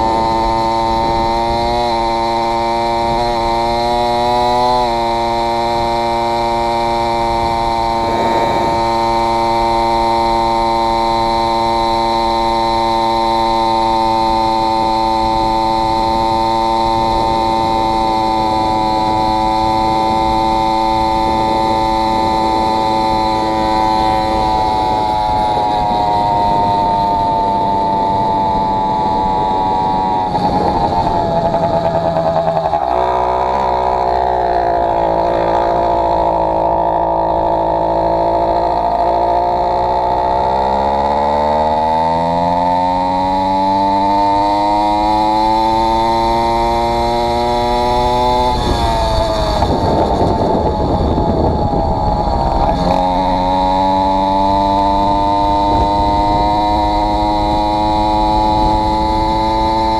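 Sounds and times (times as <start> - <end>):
two-stroke engine cruising: 0.0 - 59.9.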